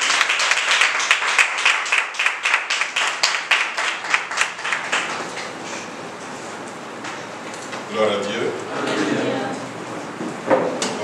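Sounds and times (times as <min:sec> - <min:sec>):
crowd applauding: 0:00.0 - 0:05.5.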